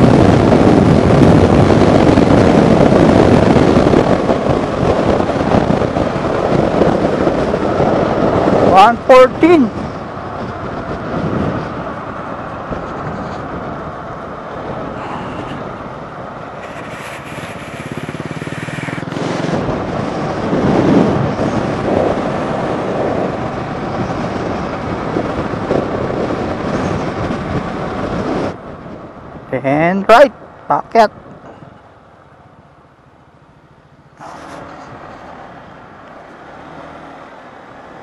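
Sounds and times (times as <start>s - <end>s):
wind and road rush: 0.0s - 38.0s
scooter engine running: 16.2s - 27.6s.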